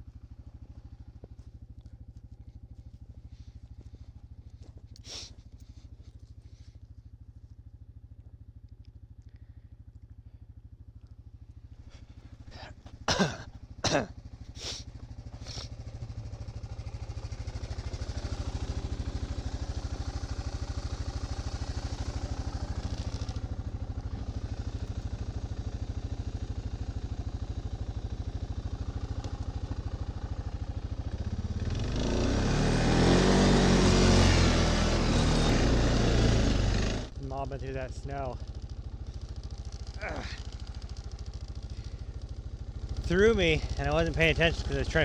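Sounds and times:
atv engine idling and revving: 0.0 - 45.0.

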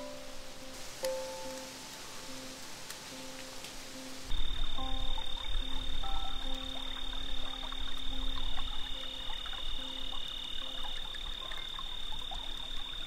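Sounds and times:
frog calls: 4.0 - 13.0
high-pitched insect trill: 4.0 - 13.0.

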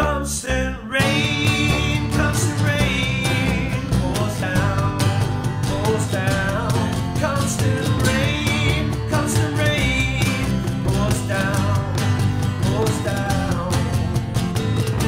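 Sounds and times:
band playing pop-rock: 0.0 - 15.0.

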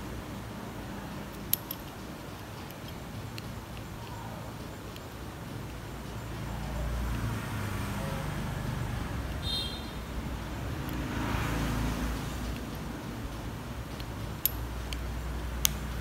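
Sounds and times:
road traffic rumble: 0.0 - 16.0
vehicle passing: 5.8 - 16.0.

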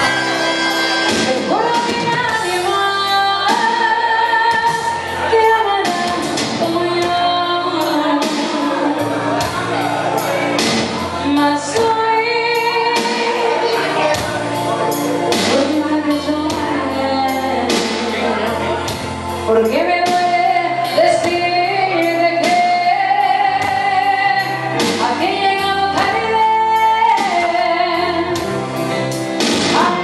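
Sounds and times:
backing music with steady beat: 0.0 - 30.0
woman singing a ballad: 1.4 - 9.2, 11.1 - 14.2, 15.4 - 18.7, 19.4 - 28.5, 29.6 - 30.0.

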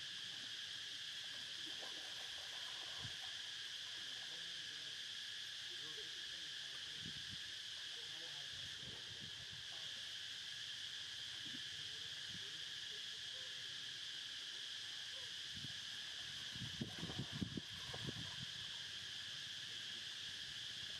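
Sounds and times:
high-pitched insect chorus: 0.0 - 20.9
soft water splashes: 16.0 - 19.0.

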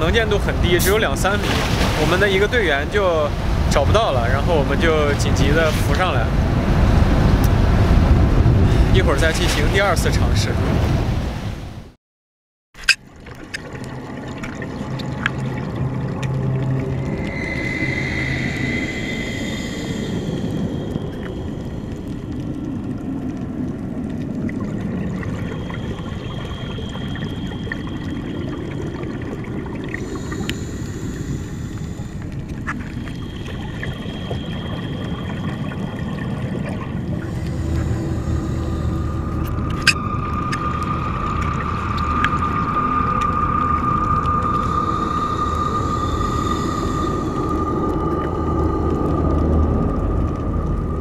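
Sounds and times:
underwater rushing hiss and rumble: 0.0 - 11.8, 12.8 - 51.0
faint high steady tones: 33.0 - 48.8.

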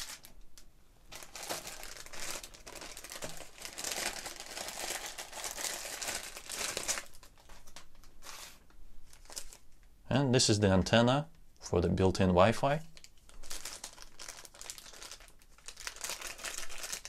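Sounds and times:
plastic bag crinkling: 0.0 - 0.4, 1.1 - 9.7, 12.9 - 17.0.

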